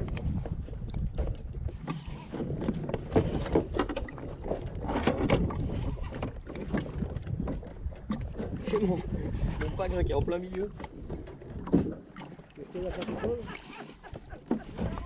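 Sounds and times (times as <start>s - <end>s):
water lapping: 0.0s - 15.0s
wind rumbling on microphone: 0.0s - 15.0s
light knocks against hull: 10.5s - 13.4s.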